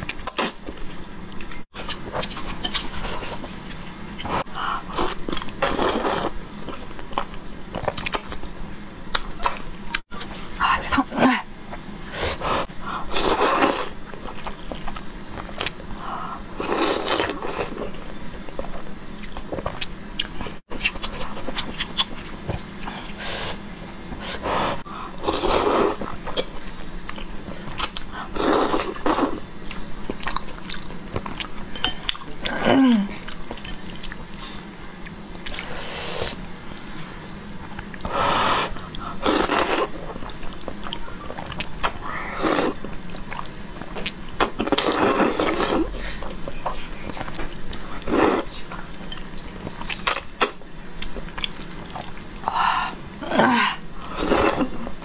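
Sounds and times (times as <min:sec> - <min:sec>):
person slurping noodles: 0:24.2 - 0:26.0, 0:38.1 - 0:40.0, 0:48.0 - 0:48.5
chewing: 0:38.7 - 0:52.4.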